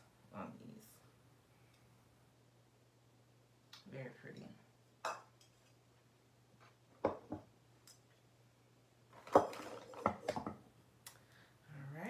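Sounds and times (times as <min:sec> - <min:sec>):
knocks of items put down: 0:09.2 - 0:10.6.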